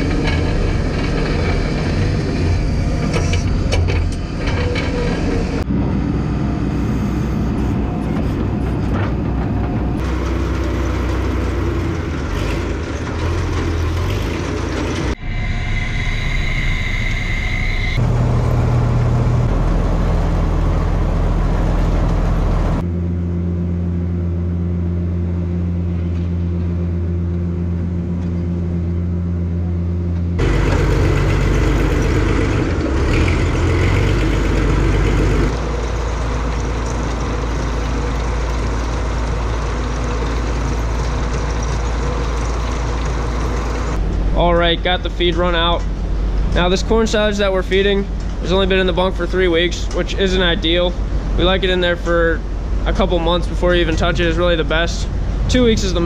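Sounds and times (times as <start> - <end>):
diesel tractor engine hum: 0.0 - 56.0.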